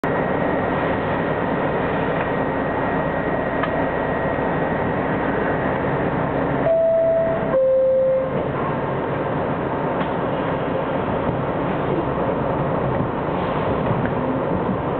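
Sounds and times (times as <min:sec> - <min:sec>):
subway train rumbling on rails: 0:00.0 - 0:14.9
two-tone chime: 0:06.7 - 0:08.3.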